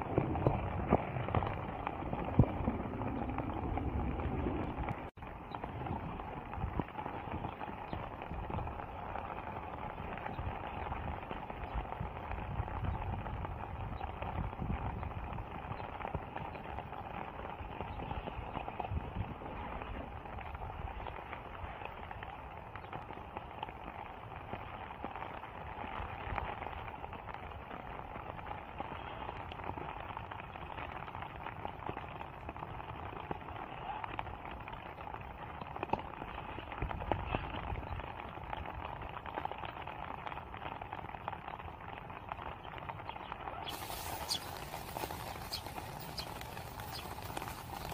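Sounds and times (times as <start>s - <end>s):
rain falling: 0.0s - 47.9s
footsteps on mulch: 43.6s - 47.9s.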